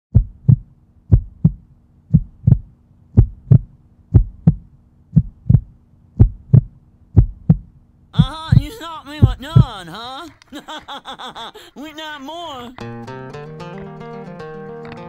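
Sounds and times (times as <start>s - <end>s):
heartbeat thumps: 0.1s - 9.8s.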